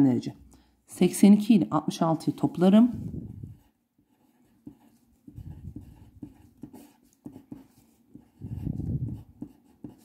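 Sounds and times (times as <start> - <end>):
pen scratching on paper: 2.2 - 10.0.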